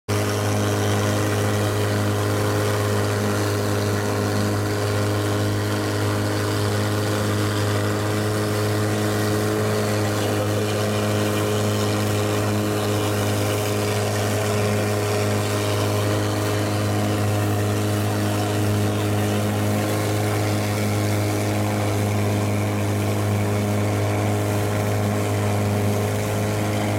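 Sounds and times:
boat engine droning: 0:00.1 - 0:26.9.

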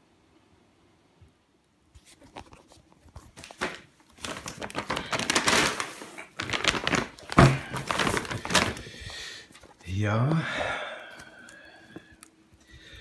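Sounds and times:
plastic bags rustling and crinkling: 0:02.0 - 0:10.0.

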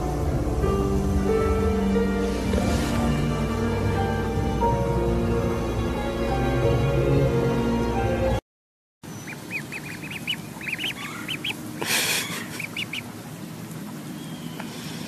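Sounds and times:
ducklings peeping: 0:09.0 - 0:13.2.

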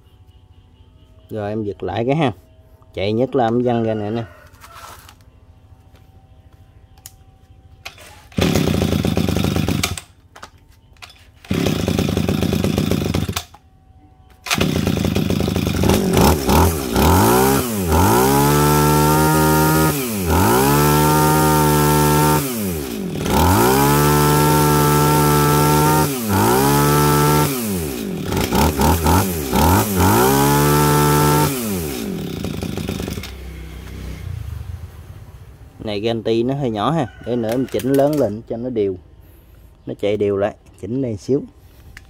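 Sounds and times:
two-stroke engine starting and revving: 0:07.8 - 0:10.2, 0:11.0 - 0:13.6, 0:14.4 - 0:38.4.

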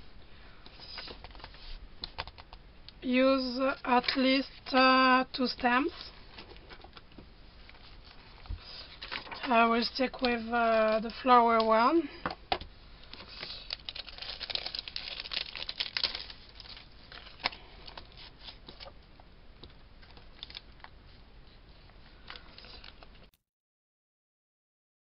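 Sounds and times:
plastic packaging crinkling: 0:13.0 - 0:18.9, 0:20.0 - 0:20.9, 0:22.2 - 0:23.3.

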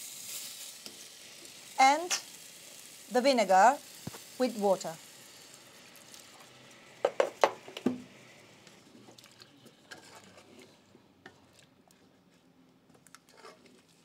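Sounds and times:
wooden spoon knocking on pan: 0:07.0 - 0:08.0.

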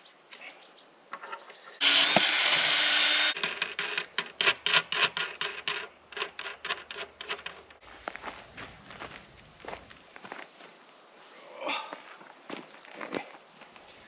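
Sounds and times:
cordless drill boring wood: 0:01.8 - 0:03.4.

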